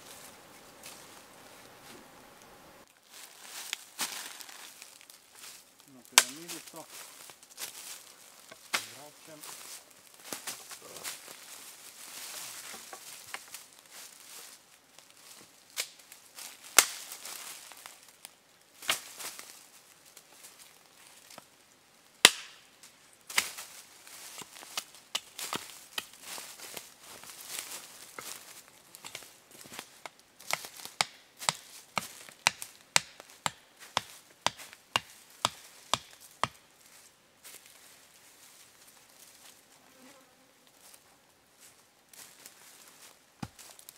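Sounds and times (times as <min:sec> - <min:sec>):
rustling in dry leaves: 0:00.0 - 0:22.0, 0:22.6 - 0:33.4, 0:34.0 - 0:39.8, 0:40.7 - 0:43.9
sharp cracks: 0:06.1 - 0:06.8, 0:16.7 - 0:17.1, 0:22.2 - 0:22.6.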